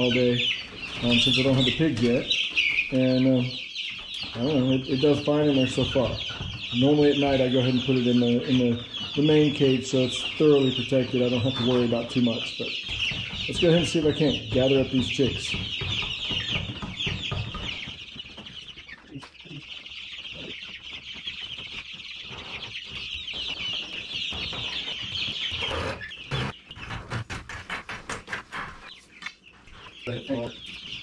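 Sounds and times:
wire brooder rattling and rustling: 0.0 - 2.9
chicks peeping: 0.0 - 31.0.

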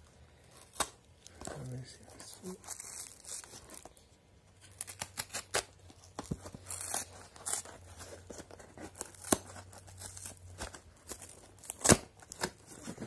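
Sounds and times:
knife cutting cardboard and tape: 4.7 - 13.0.

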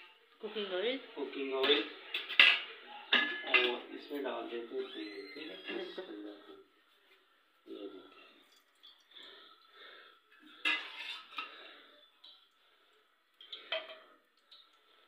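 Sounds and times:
ladle clinking and scraping pots: 1.5 - 4.4, 10.3 - 12.5, 13.4 - 14.3.

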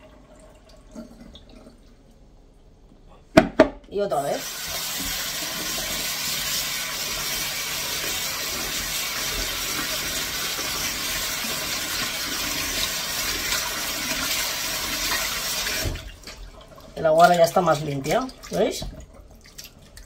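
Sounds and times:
tap water running into bowl: 4.3 - 20.0.

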